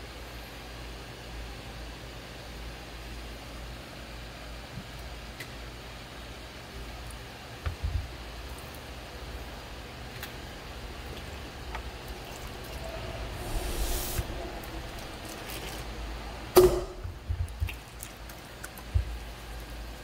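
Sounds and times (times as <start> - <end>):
potter's wheel humming: 9.2 - 17.6
short hiss: 13.3 - 14.8.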